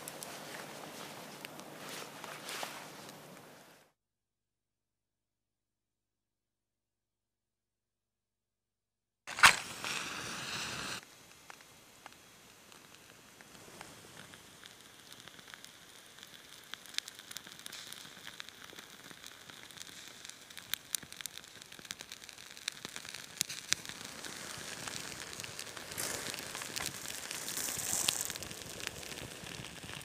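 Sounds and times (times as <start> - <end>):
fire crackling and popping: 0.0 - 3.6, 9.3 - 30.0
rush of flame: 9.3 - 11.1, 22.6 - 30.0.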